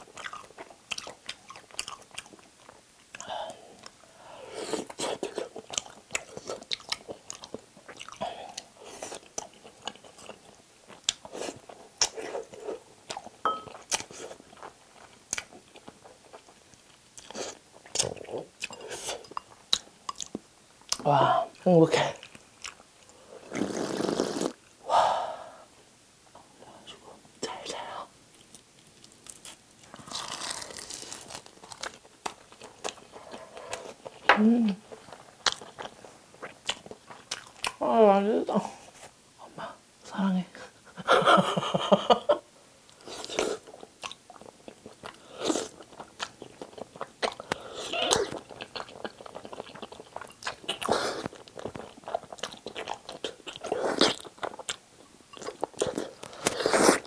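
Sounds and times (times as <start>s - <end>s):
person chewing with mouth smacks: 0.0s - 4.0s, 4.6s - 21.1s, 28.4s - 37.8s, 42.9s - 57.0s
seaweed sheet crunching: 29.2s - 31.9s.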